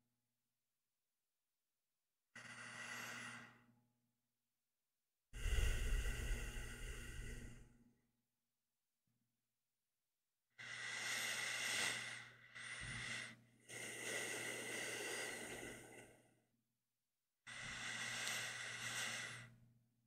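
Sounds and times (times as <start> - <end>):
slow deep breathing of sleeper: 2.4 - 3.7, 5.4 - 7.9, 10.6 - 16.4, 17.5 - 19.7.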